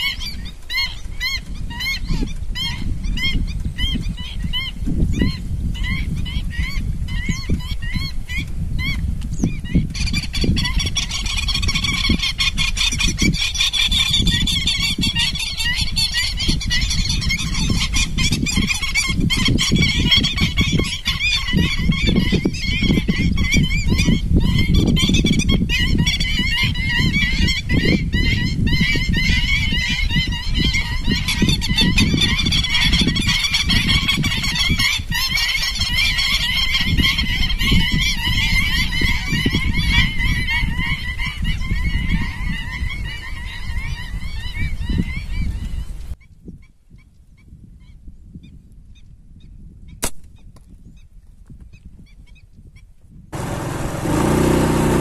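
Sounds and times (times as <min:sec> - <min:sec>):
flock of waterfowl calling: 0:10.0 - 0:45.8.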